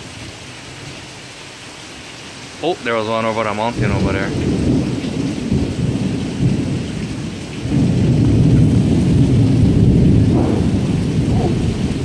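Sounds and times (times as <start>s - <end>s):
steady rain: 0.0s - 12.0s
thunder rumbling: 3.7s - 12.0s.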